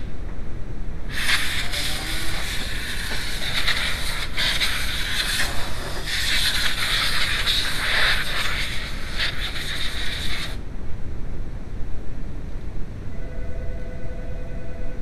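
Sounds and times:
steady hiss: 0.0 - 10.8.

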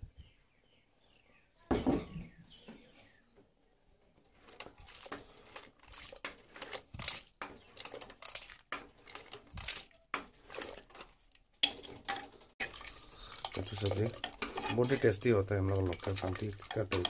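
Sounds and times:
rod scraping inside metal pot: 4.4 - 17.0.

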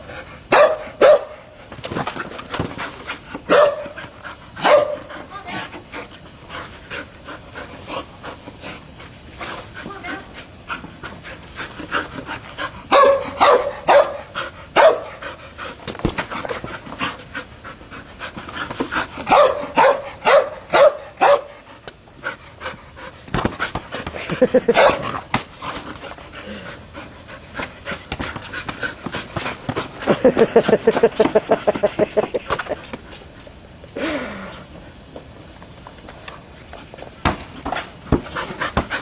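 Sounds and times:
dog barking: 0.5 - 1.4, 3.5 - 3.9, 4.6 - 5.1, 12.9 - 15.1, 19.3 - 21.5, 24.7 - 25.0.

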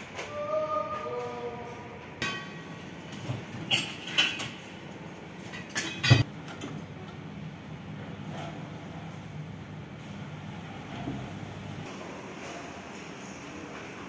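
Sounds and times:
metal tools clinking and knocking: 2.2 - 4.7, 5.4 - 6.8.

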